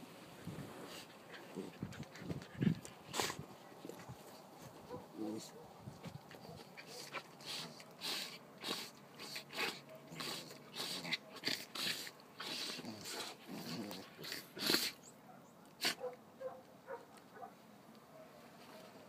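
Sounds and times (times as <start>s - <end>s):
puppies growling and snarling: 0.6s - 3.5s, 6.7s - 15.1s.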